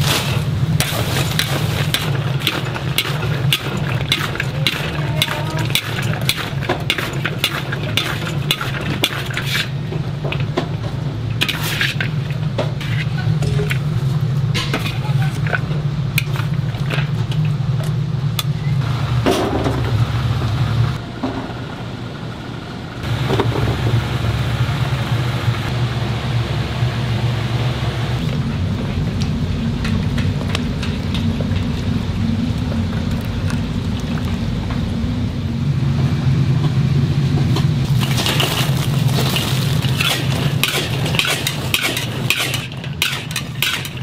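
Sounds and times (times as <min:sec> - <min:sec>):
steady low hum: 0:00.0 - 0:44.0
spatula scraping and clinking in wok: 0:38.0 - 0:44.0.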